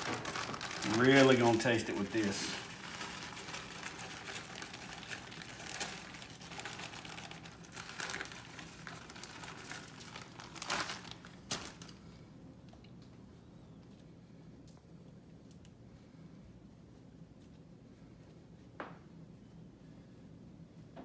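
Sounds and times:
plastic bag crinkling: 0.0s - 12.1s
aluminium foil rustling: 0.0s - 12.2s.

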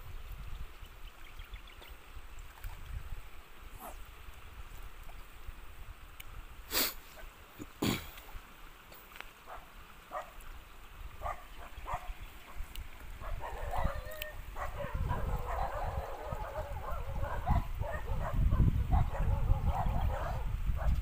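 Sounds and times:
wind rumble on microphone: 0.0s - 6.6s, 11.0s - 21.0s.

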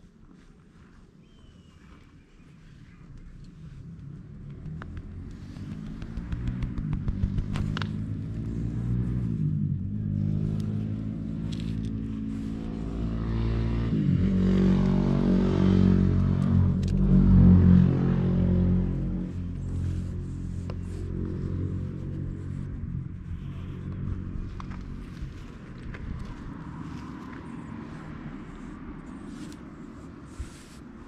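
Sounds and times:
cat rubbing against camera: 0.0s - 9.4s, 18.0s - 31.0s.

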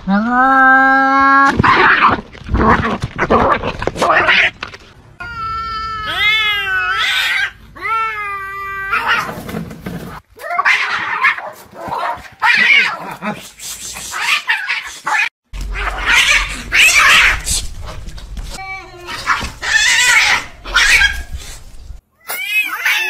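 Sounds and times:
cat yowling: 5.2s - 9.3s, 14.2s - 17.5s, 19.0s - 21.3s, 22.2s - 23.0s
cat hissing: 12.6s - 18.0s.

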